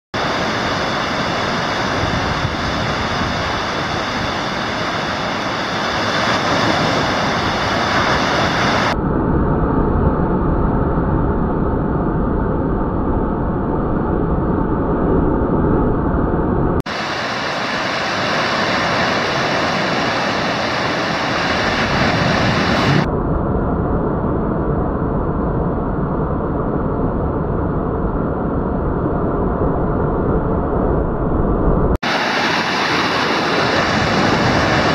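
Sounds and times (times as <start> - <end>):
ocean waves breaking on beach: 0.2 - 9.0, 16.9 - 23.1, 32.0 - 34.9.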